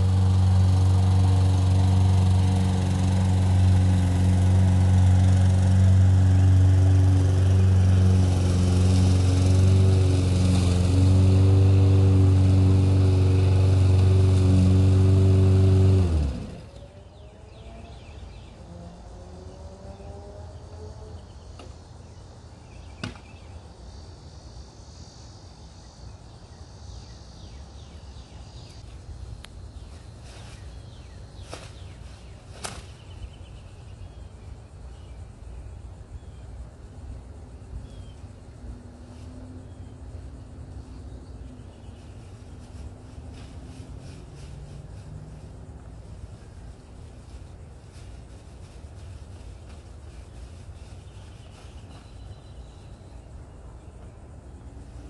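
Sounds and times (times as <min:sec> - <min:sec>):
lawn mower engine running: 0:00.0 - 0:18.6.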